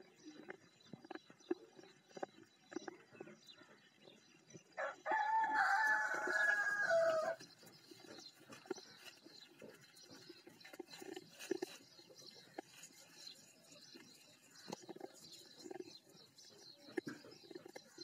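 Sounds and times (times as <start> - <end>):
drawn-out animal call: 4.8 - 18.0
goats crunching grain: 5.1 - 18.0.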